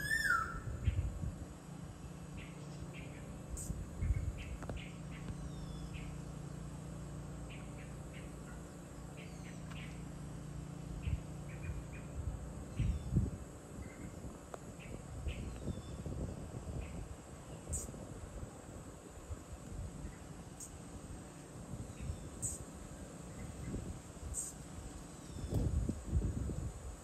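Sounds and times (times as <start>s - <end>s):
falling whistles: 0.0s - 0.6s
steady low hum: 0.0s - 27.0s
small birds chirping: 1.8s - 18.0s, 20.0s - 25.8s.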